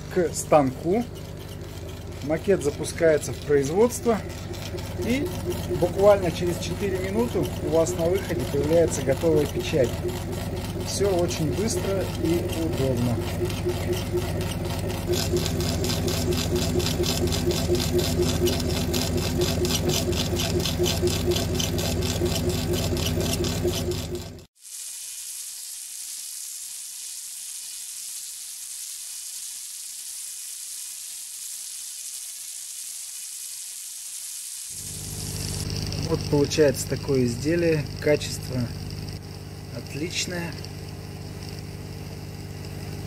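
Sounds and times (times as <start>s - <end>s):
laser engraver head pulsing: 0.0s - 43.0s
steady high hiss: 24.6s - 43.0s.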